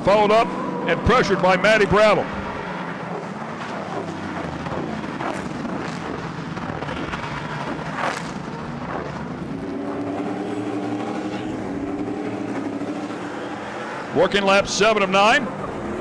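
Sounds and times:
truck engines revving: 0.0 - 16.0
sharp crack: 4.0 - 9.3.

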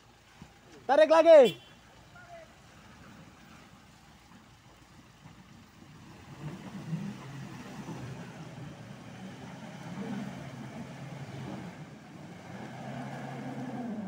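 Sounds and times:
car engine revving under load: 6.1 - 14.0.

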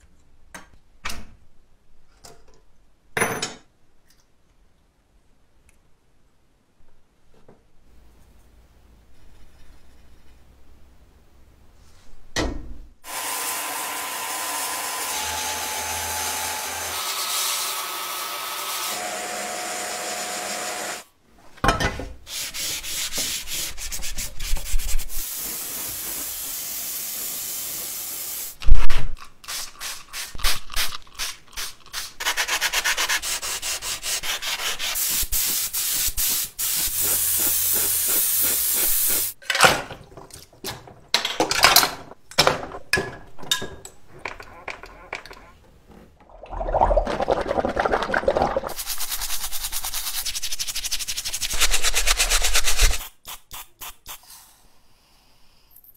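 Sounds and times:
sanding metal: 48.8 - 53.1.

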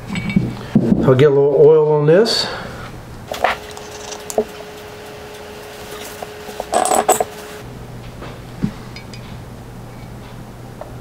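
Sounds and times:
faint steady hum: 1.8 - 11.0.

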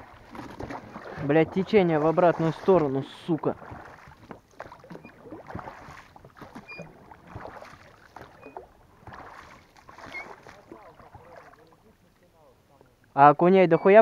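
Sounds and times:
oars splashing water: 0.0 - 14.0
oarlock squeak: 6.6 - 6.9, 8.3 - 8.7, 10.0 - 10.5, 13.7 - 14.0.

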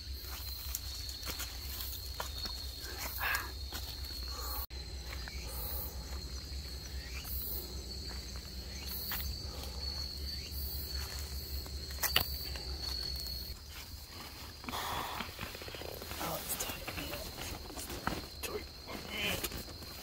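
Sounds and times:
insects trilling: 0.0 - 20.0.

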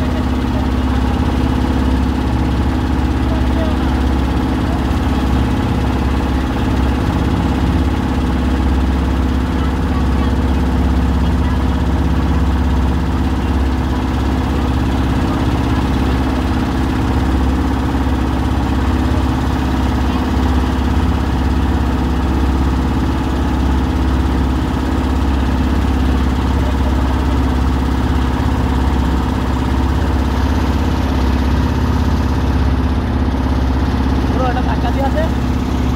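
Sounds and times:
boat engine humming: 0.0 - 35.9
water splashing along hull: 0.0 - 35.9.

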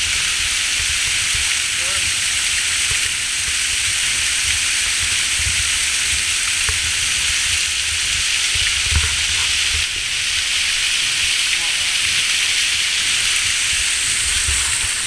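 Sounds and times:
small waterfall hissing: 0.0 - 15.0.

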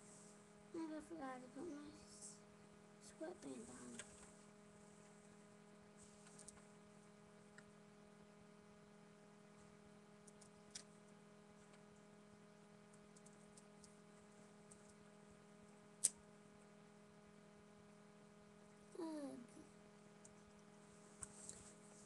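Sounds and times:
low electrical hum: 0.0 - 22.0
small clicks: 10.2 - 11.0, 12.9 - 14.0.

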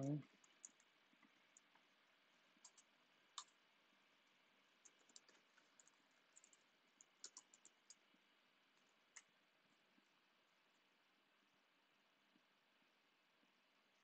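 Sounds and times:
faint keyboard typing: 0.0 - 11.0.

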